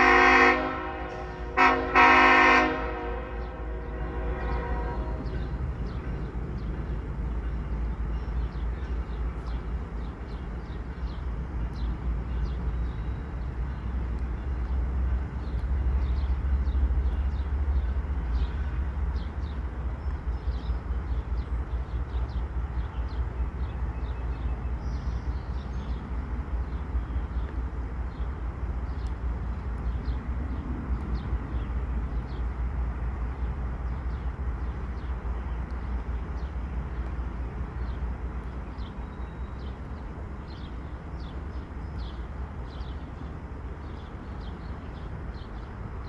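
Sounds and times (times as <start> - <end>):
birds chirping: 2.6 - 32.6, 33.3 - 46.0.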